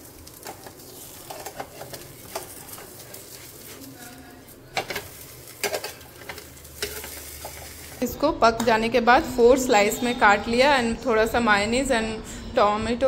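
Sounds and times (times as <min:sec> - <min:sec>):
pancake sizzling in pan: 0:00.0 - 0:08.0.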